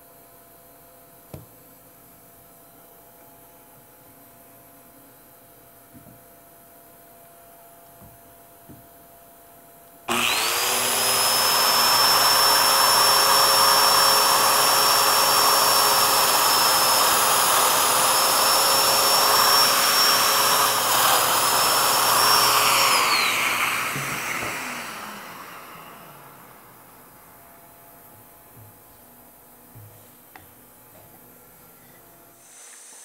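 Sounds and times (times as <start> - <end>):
power tool motor whining: 10.1 - 27.0.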